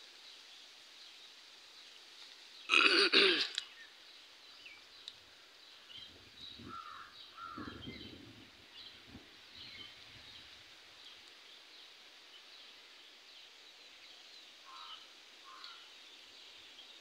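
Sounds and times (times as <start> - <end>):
outdoor background noise: 0.0 - 17.0
small birds chirping: 0.2 - 17.0
bird calling harshly: 2.7 - 3.6.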